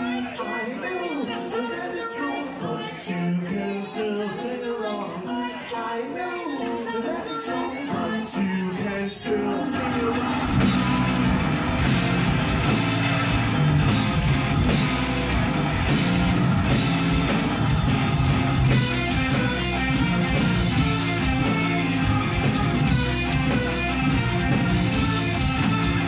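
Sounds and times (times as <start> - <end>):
person singing: 0.0 - 13.4
rock band playing loud: 7.8 - 26.0.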